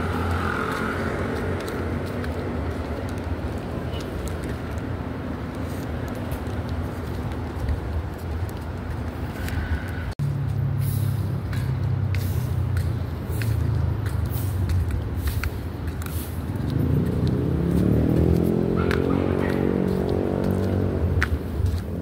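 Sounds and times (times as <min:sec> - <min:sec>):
vehicle engine speeding up: 0:00.0 - 0:01.8, 0:16.4 - 0:22.0
street traffic hum: 0:00.0 - 0:22.0
footsteps tapping: 0:00.3 - 0:09.6, 0:11.4 - 0:22.0.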